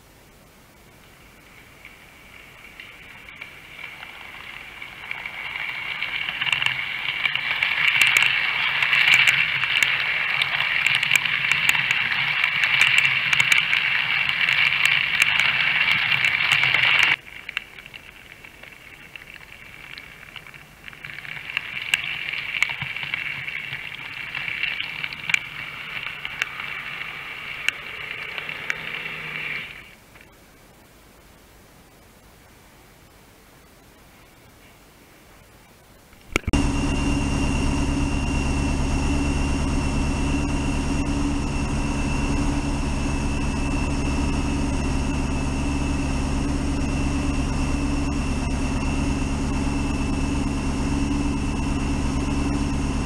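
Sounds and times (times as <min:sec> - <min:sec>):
faint motor hum: 0:35.9 - 0:53.0.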